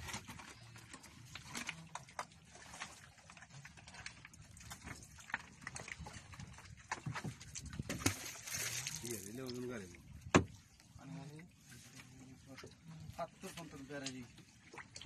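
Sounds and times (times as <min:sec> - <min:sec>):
fishing net clicks and knocks: 0:06.9 - 0:09.0.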